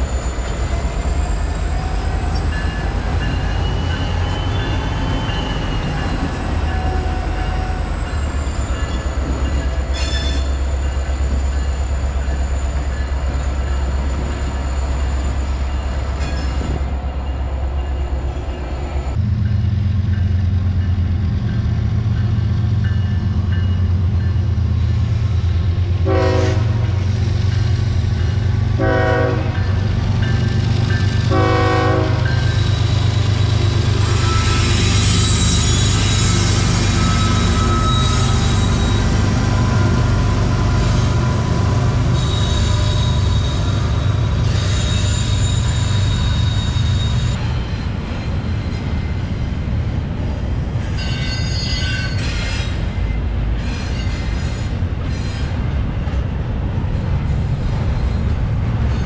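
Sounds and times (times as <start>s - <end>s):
diesel locomotives rumbling: 0.0s - 59.0s
train air horn blasts: 26.0s - 27.0s, 28.8s - 29.7s, 31.3s - 32.5s
high squeal: 32.4s - 49.4s, 50.8s - 55.6s.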